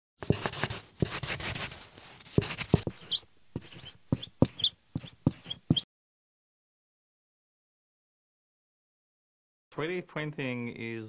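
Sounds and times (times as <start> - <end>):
pen scratching on paper: 0.2 - 5.8.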